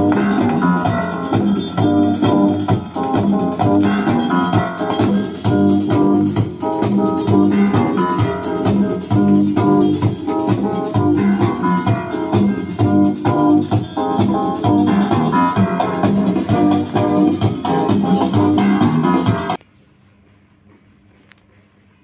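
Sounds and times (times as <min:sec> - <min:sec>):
music with steady beat from record player: 0:00.0 - 0:19.6.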